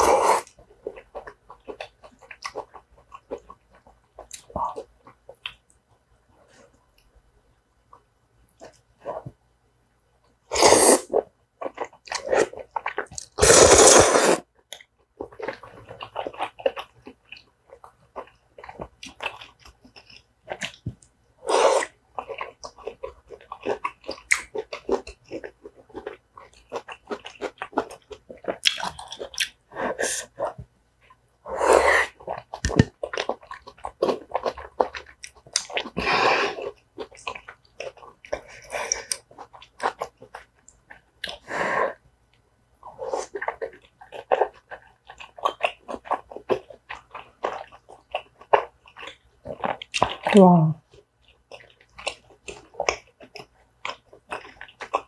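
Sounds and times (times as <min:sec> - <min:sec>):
loud noodle slurps: 0:00.0 - 0:00.5, 0:10.5 - 0:11.2, 0:13.4 - 0:14.4, 0:21.4 - 0:21.9
wet chewing and mouth clicks: 0:00.0 - 0:07.1, 0:07.8 - 0:09.4, 0:10.5 - 0:55.0.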